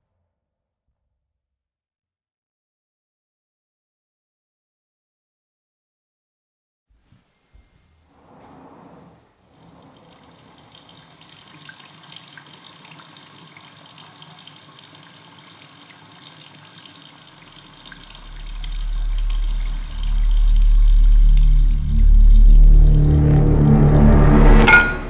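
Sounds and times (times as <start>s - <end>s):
deep low drone: 7.8s - 11.0s, 18.0s - 25.0s
faucet water splashing into basin: 9.9s - 24.2s.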